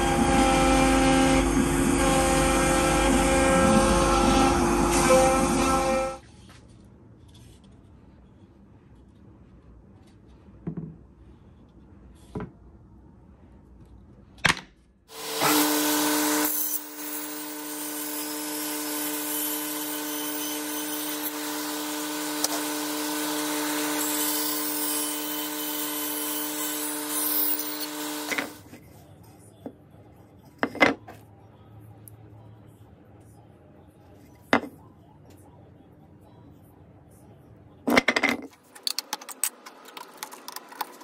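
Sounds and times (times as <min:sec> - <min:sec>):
bandsaw cutting wood: 0:00.0 - 0:06.2, 0:15.1 - 0:28.6.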